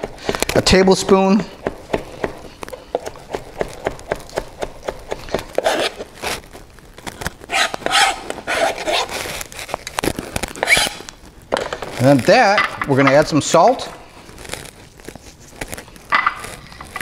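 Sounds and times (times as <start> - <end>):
knife chopping on plastic board: 0.0 - 6.0
herbs scraping and rustling: 0.0 - 17.0.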